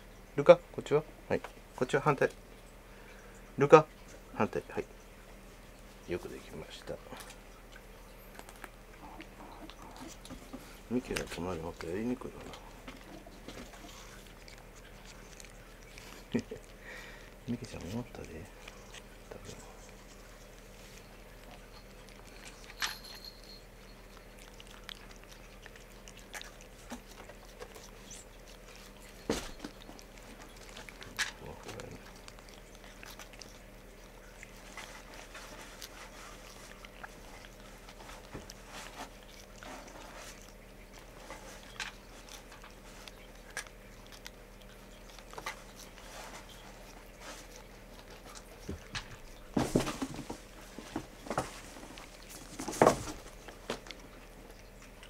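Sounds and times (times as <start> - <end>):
faint steady hum: 0.0 - 55.0
cat licking: 2.2 - 49.6, 50.4 - 55.0.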